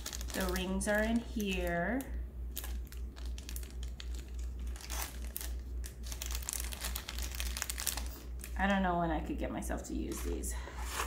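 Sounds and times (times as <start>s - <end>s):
plastic packet crinkling: 0.0s - 8.6s.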